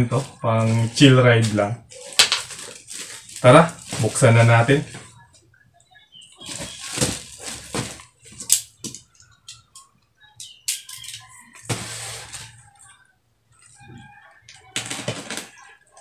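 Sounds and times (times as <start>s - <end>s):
plastic parcel rustling and bumping: 0.0s - 5.2s, 6.4s - 9.0s, 11.6s - 12.7s, 14.6s - 15.8s.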